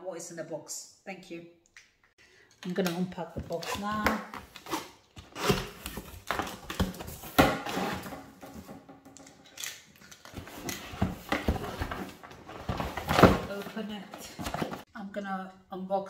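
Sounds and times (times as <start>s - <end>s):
cardboard box being opened: 10.3s - 14.8s.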